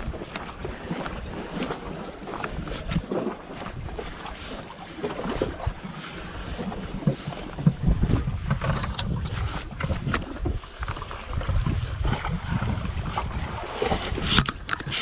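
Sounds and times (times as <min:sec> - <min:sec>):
wind buffeting microphone: 0:00.0 - 0:04.4, 0:06.5 - 0:15.0
small waves lapping on rocks: 0:00.0 - 0:15.0
handling knocks and scrapes: 0:06.1 - 0:11.8, 0:13.8 - 0:15.0.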